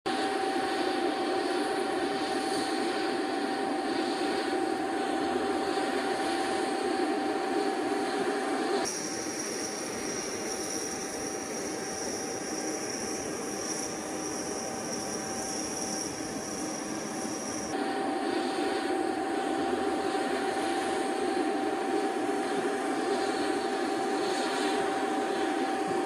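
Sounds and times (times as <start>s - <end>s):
jet turbine whine: 0.0s - 26.0s.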